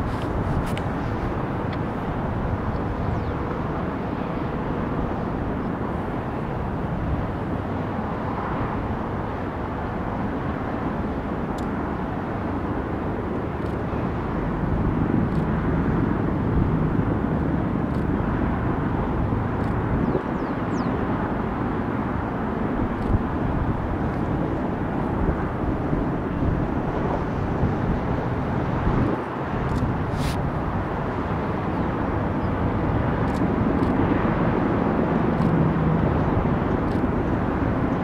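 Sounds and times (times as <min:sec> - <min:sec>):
distant aircraft rumble: 0:00.0 - 0:38.0.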